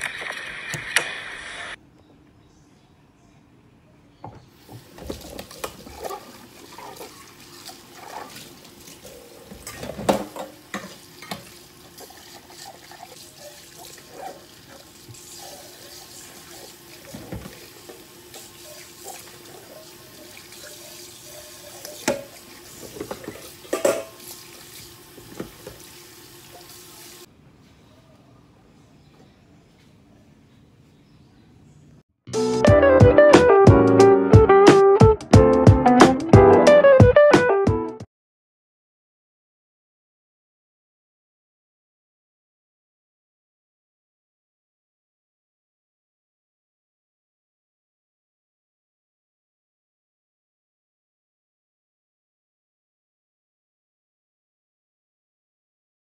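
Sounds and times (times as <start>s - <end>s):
dishes clinking against sink: 4.2s - 14.8s, 17.0s - 24.3s
tap running into steel sink: 21.8s - 24.2s.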